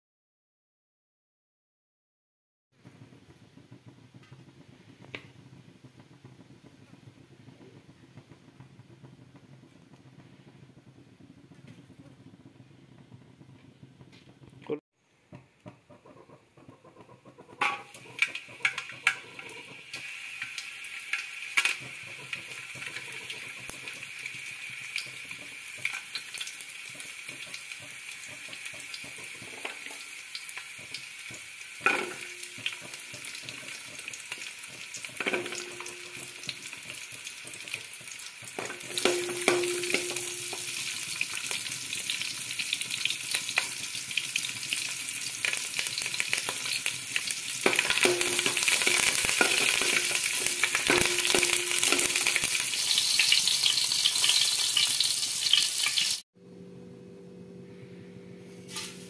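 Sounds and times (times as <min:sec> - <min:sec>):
food sizzling in hot oil: 0:16.6 - 0:56.2, 0:58.6 - 0:59.0
spoon scraping and clinking pan: 0:35.2 - 0:36.6, 0:38.6 - 0:40.9, 0:47.6 - 0:52.6.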